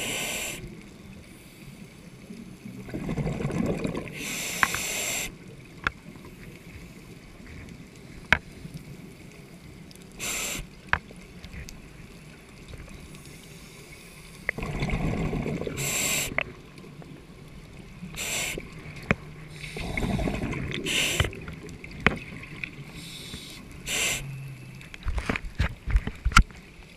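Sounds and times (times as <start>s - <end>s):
regulator inhale hiss: 0.0s - 1.9s, 4.2s - 5.4s, 10.1s - 10.8s, 15.7s - 16.4s, 18.1s - 18.8s, 19.4s - 21.4s, 22.9s - 24.9s
exhaled air bubbling: 2.5s - 4.4s, 14.4s - 25.2s.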